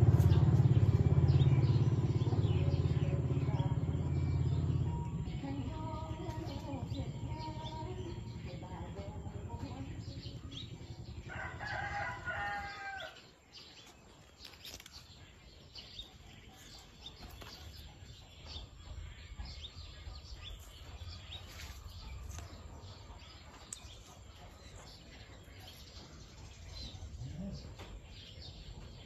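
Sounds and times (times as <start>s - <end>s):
small birds chirping: 0.0s - 29.0s
rooster crowing: 11.2s - 13.2s.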